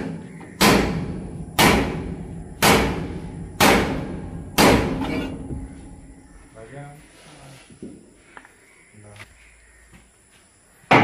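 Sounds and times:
hammer striking steel shaft: 0:02.6 - 0:05.5.

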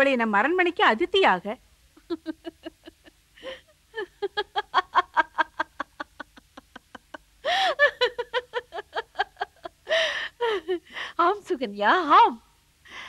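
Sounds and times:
woman laughing: 0:02.0 - 0:11.4.

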